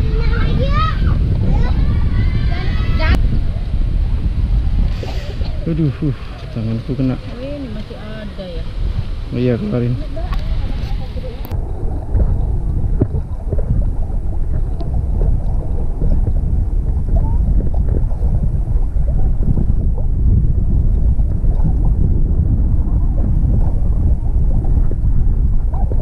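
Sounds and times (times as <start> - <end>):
wind buffeting microphone: 0.0 - 26.0
small waves lapping: 4.8 - 16.3.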